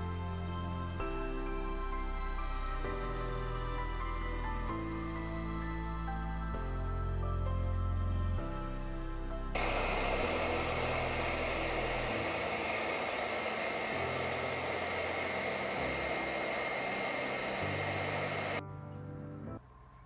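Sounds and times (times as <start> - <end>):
soft background music: 0.0 - 20.0
loud rushing noise: 9.6 - 18.6
thin high whine: 9.6 - 18.6.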